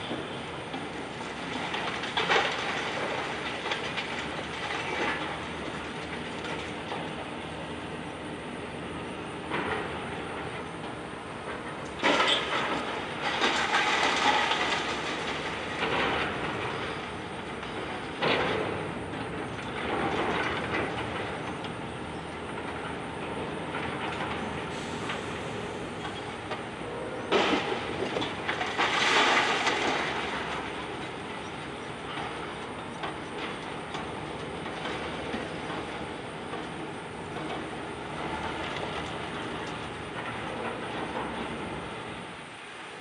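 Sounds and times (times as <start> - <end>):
building crashing down: 27.3 - 30.9.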